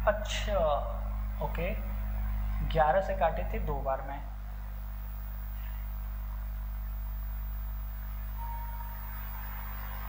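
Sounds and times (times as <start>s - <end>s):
low electrical hum: 0.0s - 10.0s
faint high tone: 8.4s - 10.0s.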